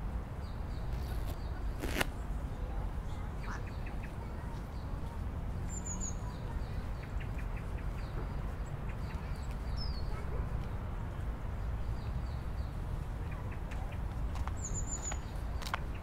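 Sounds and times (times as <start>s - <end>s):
small birds chirping: 0.4s - 2.2s, 3.1s - 16.0s.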